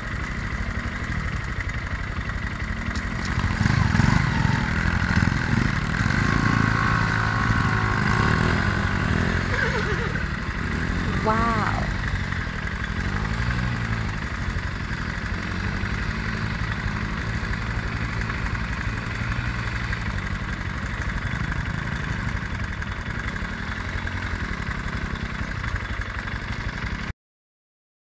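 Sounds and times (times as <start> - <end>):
motorbike engine revving: 3.2 - 20.5.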